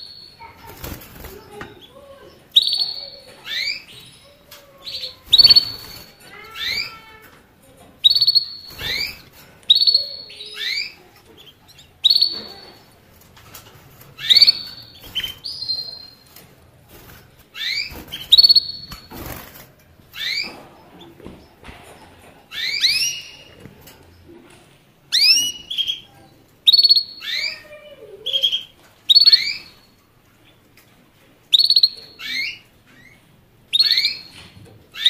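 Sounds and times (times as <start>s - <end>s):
songbird chirping: 1.3s - 16.4s, 20.0s - 24.4s, 25.1s - 35.0s.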